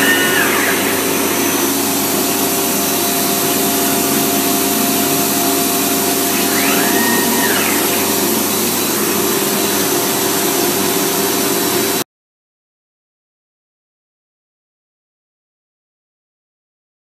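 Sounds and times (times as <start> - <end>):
brief rising whine: 0.0 - 12.0
dust extraction running: 0.0 - 12.0
router cutting wood: 0.0 - 12.0.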